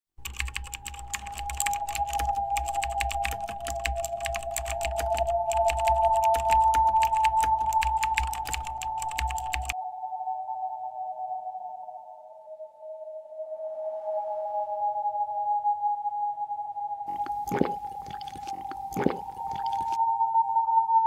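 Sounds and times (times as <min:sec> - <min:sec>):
rapid dense clicking: 0:00.2 - 0:09.8.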